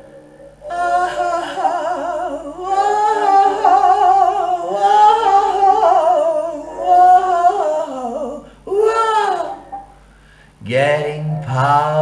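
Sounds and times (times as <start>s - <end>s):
woman humming jazz vocal: 0.0s - 10.0s.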